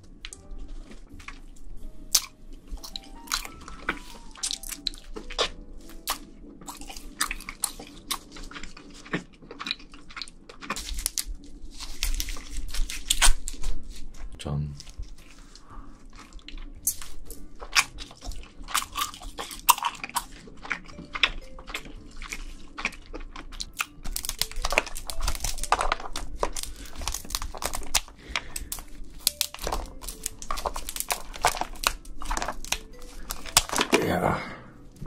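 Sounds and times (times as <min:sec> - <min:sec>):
chewing crab meat: 0:00.0 - 0:35.0
crab shells cracking: 0:02.1 - 0:13.8, 0:14.8 - 0:34.1.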